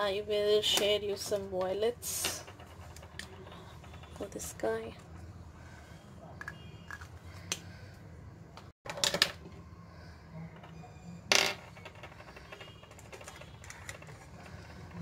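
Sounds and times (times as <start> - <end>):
small objects clattering on tabletop: 8.9 - 9.5, 11.3 - 15.0.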